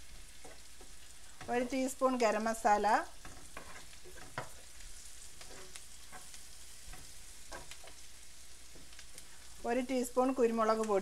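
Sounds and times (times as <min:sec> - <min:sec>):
onions sizzling in oil: 0:00.0 - 0:11.0
spoon scraping and tapping pan: 0:00.2 - 0:01.9, 0:03.2 - 0:08.1.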